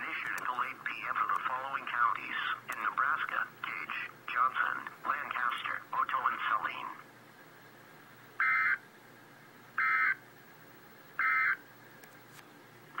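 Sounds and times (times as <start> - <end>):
digital data squawk bursts: 8.4 - 8.8, 9.8 - 10.2, 11.2 - 11.6.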